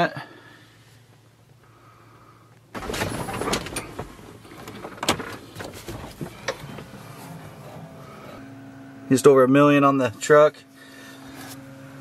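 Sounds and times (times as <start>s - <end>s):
rustling and handling noise: 2.8s - 8.4s.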